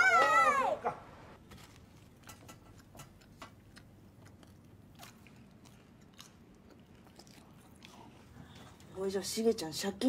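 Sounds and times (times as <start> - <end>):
child chewing food: 1.4 - 9.1.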